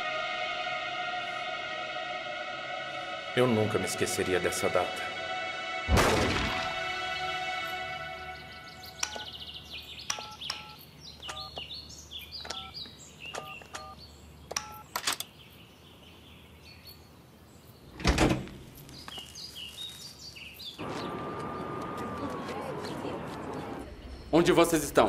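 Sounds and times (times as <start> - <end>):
street hum: 0.0 - 15.4, 17.8 - 25.0
birds chirping: 7.1 - 18.0, 18.7 - 25.0
keypad beeping: 9.0 - 9.3, 10.1 - 11.6, 12.4 - 14.0
door thud: 18.0 - 18.5.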